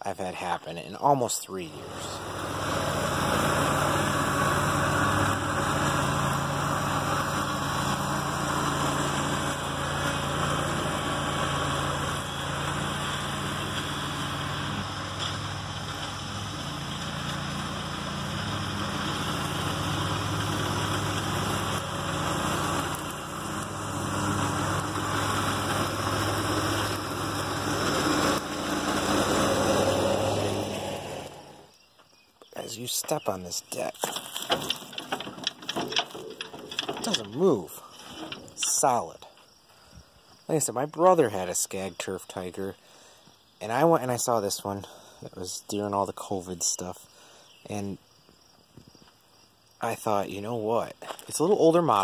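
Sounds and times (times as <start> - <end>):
lawn mower engine running: 1.6 - 31.8, 32.9 - 39.5.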